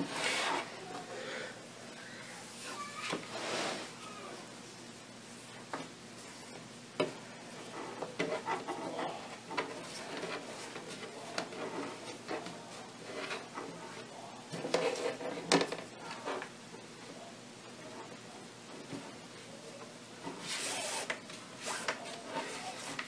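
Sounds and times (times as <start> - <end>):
cord rustling and sliding: 0.0 - 0.7, 20.2 - 23.0.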